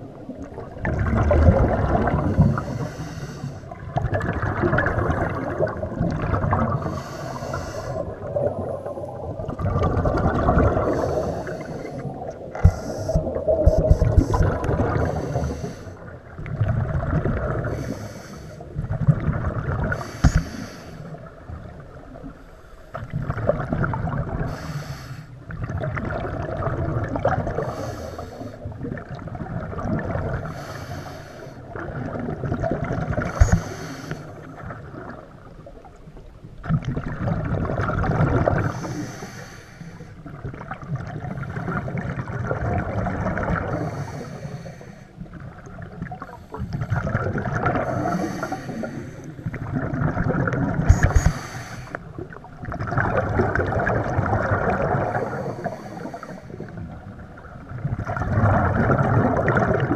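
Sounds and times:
bubbling exhales: 0.5 - 20.8, 45.5 - 57.0, 57.9 - 59.9
regulator hissing inhales: 2.6 - 3.7, 6.8 - 8.0, 10.9 - 12.1, 15.0 - 16.0, 17.8 - 18.6, 20.0 - 21.1, 24.5 - 25.4, 27.6 - 28.6, 30.5 - 31.6, 33.4 - 34.3, 38.7 - 40.2, 43.8 - 45.2, 48.0 - 49.4, 50.9 - 52.0, 55.2 - 56.7.

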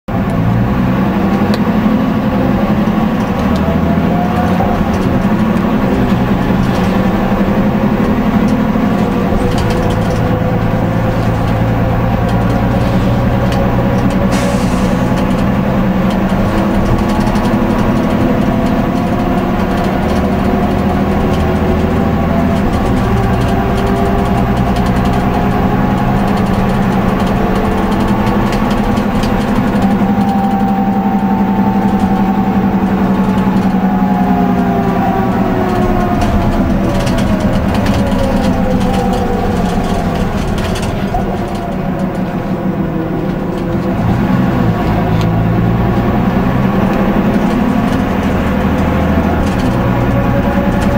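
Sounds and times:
bus engine whine: 0.0 - 50.9.

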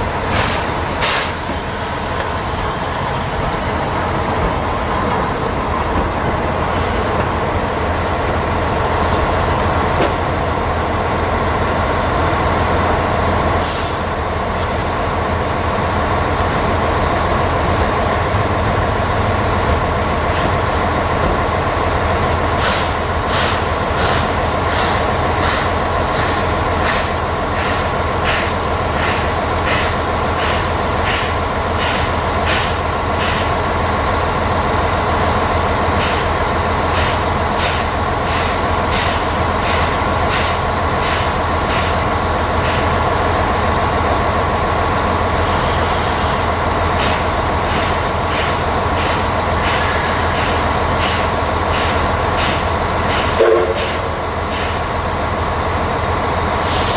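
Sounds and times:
steam locomotive hiss and hum: 0.0 - 56.9
sharp burst of steam: 0.3 - 3.4, 13.6 - 14.2, 45.4 - 54.8, 56.6 - 56.9.

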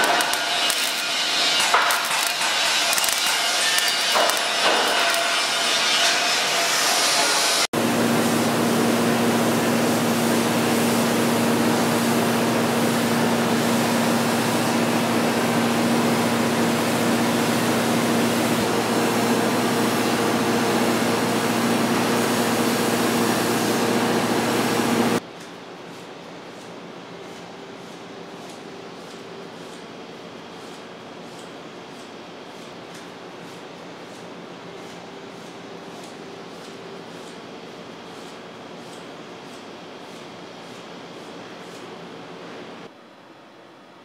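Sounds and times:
welding torch crackling: 0.0 - 25.2.

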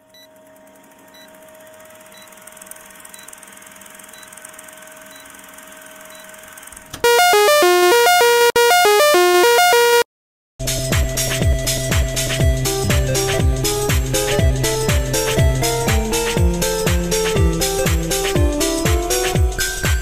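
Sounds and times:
short high beeps: 7.0 - 10.0
synthesizer jingle: 7.0 - 10.1.

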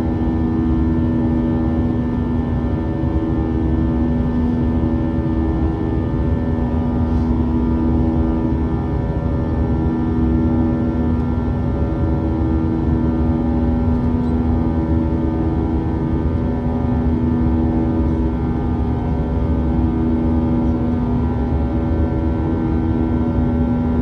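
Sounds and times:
jet engines droning: 0.0 - 24.0.

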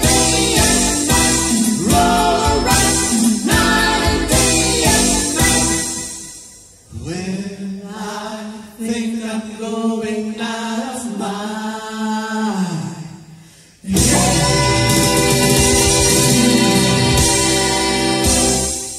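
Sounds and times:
women singing harmony: 0.0 - 6.0, 7.8 - 13.1, 13.9 - 18.9
loud full music: 0.0 - 6.6, 13.9 - 18.9.

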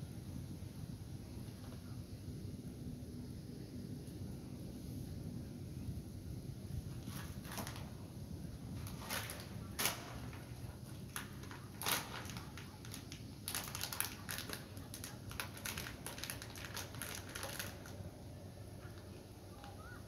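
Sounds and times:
plastic wrapper crinkling: 7.0 - 7.9, 8.8 - 18.1.

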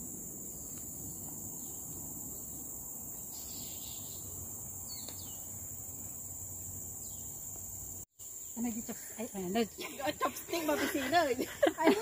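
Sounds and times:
insects droning: 0.0 - 12.0
voices: 8.6 - 12.0.

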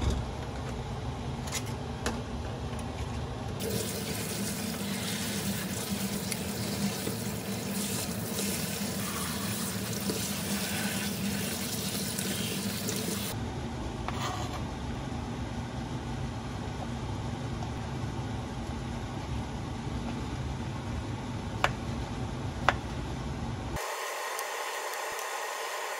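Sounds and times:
tap water running into strainer: 3.6 - 13.4.

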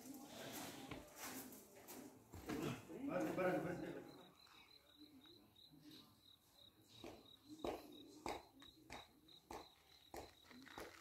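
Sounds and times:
insect chirping: 3.7 - 11.0.

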